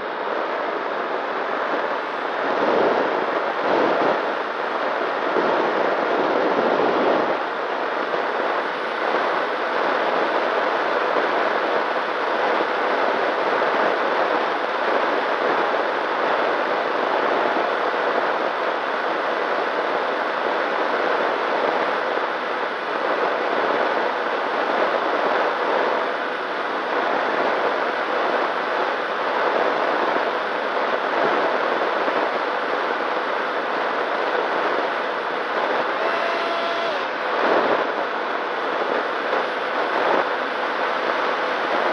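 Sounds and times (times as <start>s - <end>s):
air rush and propeller noise: 0.0s - 41.9s
faint electric motor whine: 14.5s - 41.9s.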